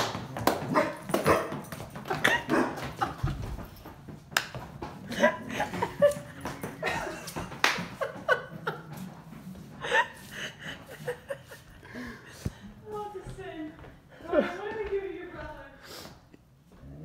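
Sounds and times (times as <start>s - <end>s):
dog boots clattering on wooden floor: 0.0s - 9.8s.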